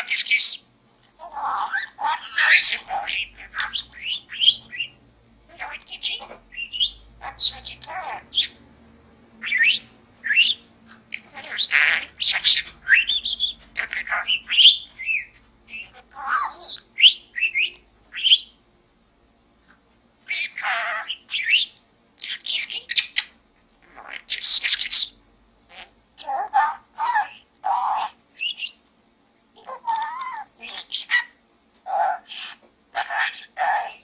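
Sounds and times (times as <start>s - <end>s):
budgerigar chattering: 1.3s - 8.6s, 9.4s - 18.5s.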